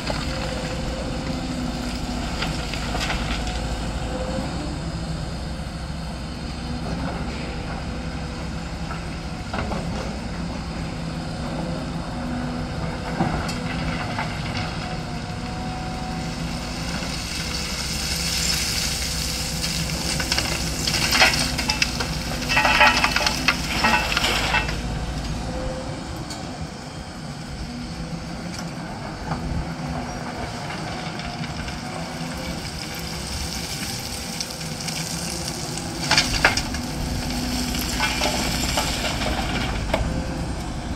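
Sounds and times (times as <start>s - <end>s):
excavator diesel engine running: 0.0s - 40.9s
earth and stones pouring into truck: 17.1s - 24.8s, 32.6s - 39.9s.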